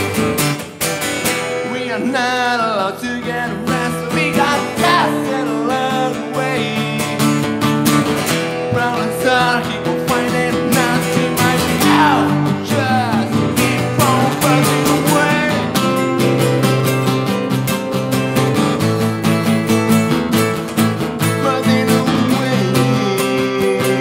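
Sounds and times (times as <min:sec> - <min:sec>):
acoustic guitars strumming: 0:00.0 - 0:24.0
man singing: 0:01.5 - 0:07.6, 0:08.4 - 0:17.1, 0:21.2 - 0:24.0.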